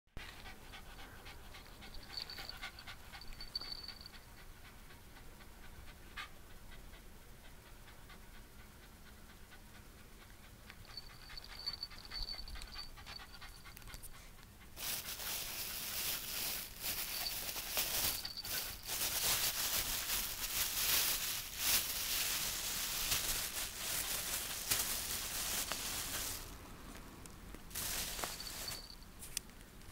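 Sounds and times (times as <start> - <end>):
dog panting: 0.2 - 14.8.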